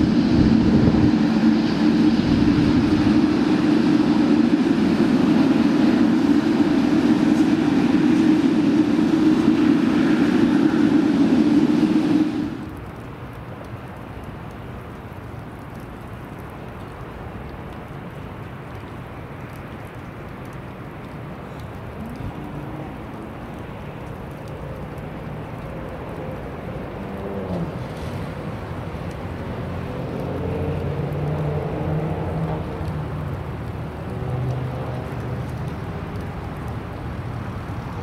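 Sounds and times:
engine hums sliding in pitch: 0:00.0 - 0:12.8, 0:25.4 - 0:37.0
jet engine rushing: 0:00.0 - 0:12.9.

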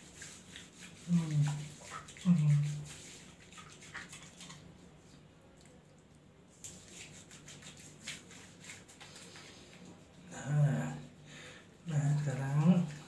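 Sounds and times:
wet pats on face: 0:00.0 - 0:05.8, 0:06.5 - 0:10.3
hands rubbing soapy lather: 0:00.0 - 0:13.0.

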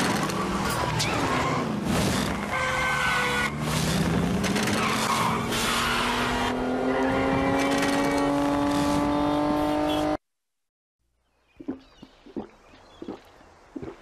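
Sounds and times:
car engine revving high: 0:03.6 - 0:10.2.

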